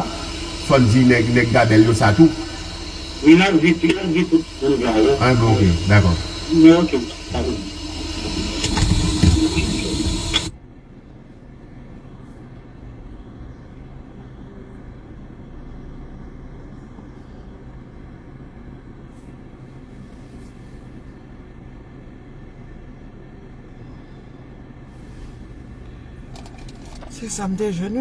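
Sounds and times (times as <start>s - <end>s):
loud rushing hiss: 0.0s - 10.5s
low steady hum in car cabin: 0.0s - 28.0s.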